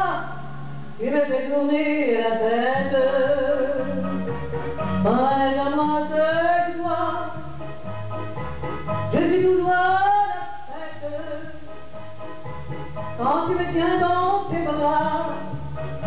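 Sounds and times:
instrumental accompaniment with bass: 0.0 - 1.5, 2.1 - 16.0
woman singing into microphone: 0.0 - 4.2, 5.0 - 7.4, 9.1 - 11.7, 13.2 - 15.8.

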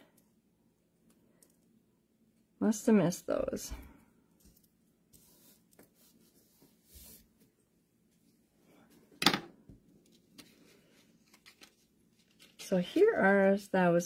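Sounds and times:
paper rustling: 10.0 - 13.6.

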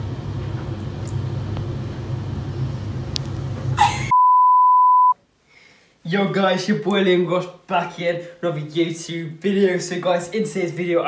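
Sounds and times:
low background hum: 0.0 - 4.2
high-pitched test-tone beep: 4.1 - 5.2.

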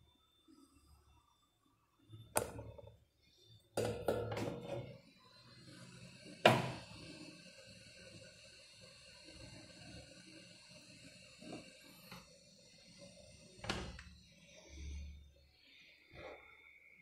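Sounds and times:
faint hiss with high whine: 0.0 - 17.0.

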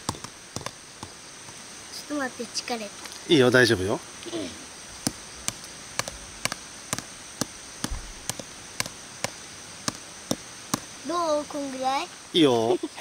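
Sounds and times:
hatchet tapping wood: 0.0 - 1.6, 5.0 - 10.9.

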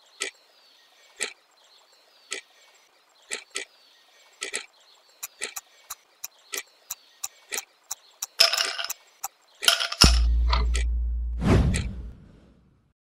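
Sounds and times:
clock ticking: 10.0 - 11.0.

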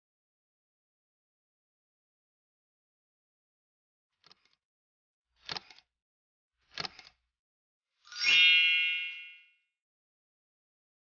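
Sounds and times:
bright chime: 8.0 - 9.7.

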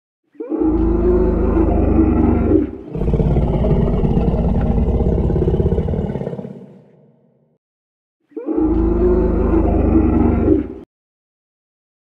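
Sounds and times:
low dinosaur roars: 0.4 - 7.2, 8.4 - 10.8.

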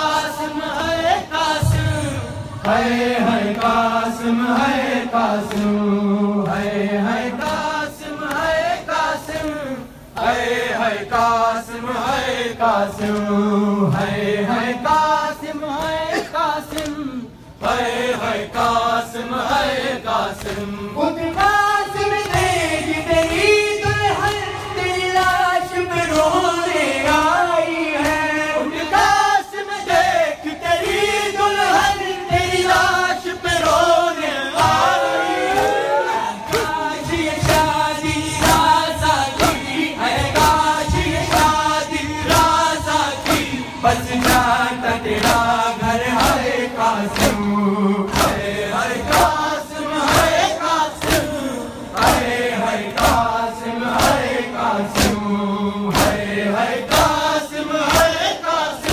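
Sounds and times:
crowd of men chanting: 0.0 - 58.9
hands slapping chests: 36.4 - 36.8, 43.2 - 43.6, 44.2 - 44.6, 47.1 - 47.4, 54.0 - 54.3, 54.9 - 55.2, 55.9 - 56.2, 56.9 - 57.2.

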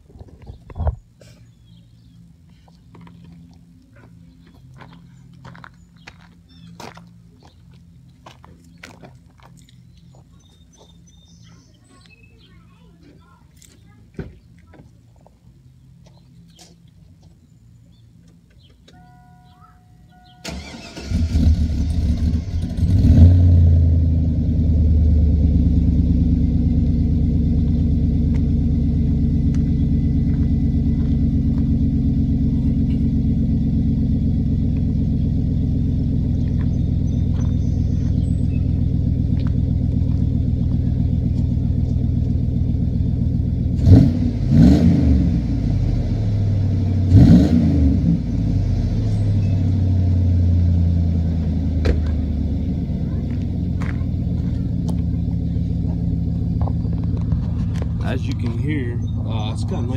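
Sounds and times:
engine idling: 20.2 - 47.3, 48.1 - 59.9
engine cranking and starting: 20.4 - 23.1
engine revving: 20.5 - 59.9.

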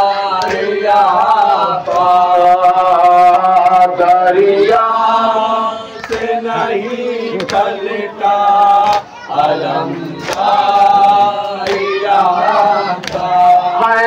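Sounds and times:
men chanting through a microphone: 0.0 - 14.0
hands slapping chests: 7.4 - 7.7, 8.8 - 9.1, 10.1 - 12.0, 13.0 - 13.4.

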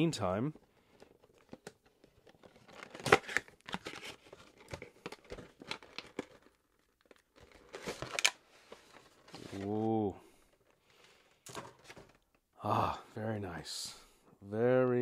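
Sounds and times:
cardboard and plastic crinkling: 0.5 - 12.4.

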